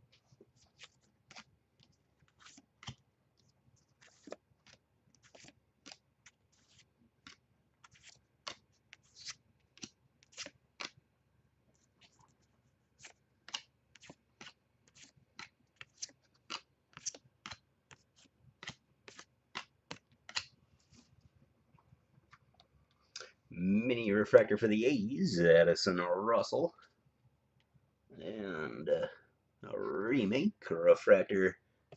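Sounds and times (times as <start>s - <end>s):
trading cards flipped by hand: 0.6s - 3.0s, 3.8s - 11.0s, 13.0s - 21.1s.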